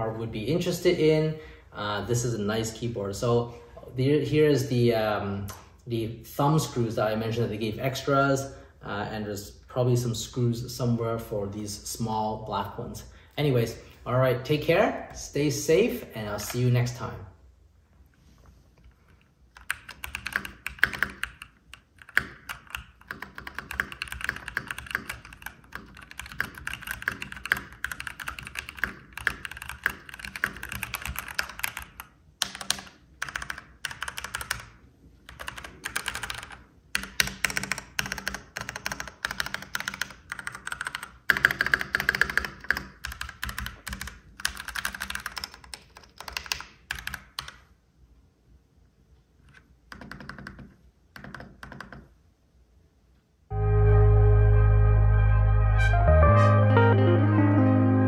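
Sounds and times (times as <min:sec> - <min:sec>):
mechanical keyboard keystroke clacks: 0:19.6 - 0:34.7, 0:35.3 - 0:47.6.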